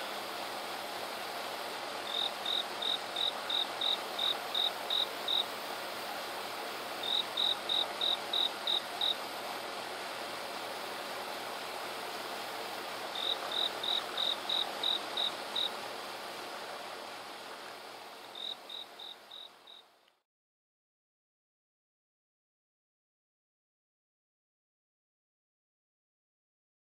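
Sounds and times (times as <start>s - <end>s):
steady hiss: 0.0s - 20.2s
insect chirping: 2.0s - 5.5s, 7.0s - 9.2s, 13.1s - 15.8s, 18.2s - 19.9s.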